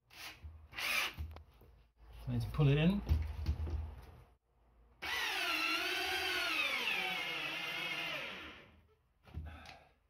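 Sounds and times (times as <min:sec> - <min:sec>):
cordless drill motor whine: 0:05.0 - 0:08.7.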